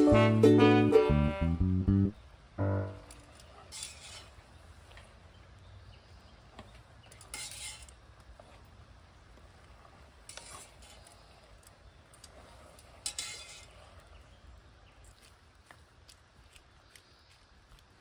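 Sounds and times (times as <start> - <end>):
spoon scraping pot: 3.7 - 4.4, 7.2 - 8.0, 10.3 - 11.3, 13.0 - 13.8.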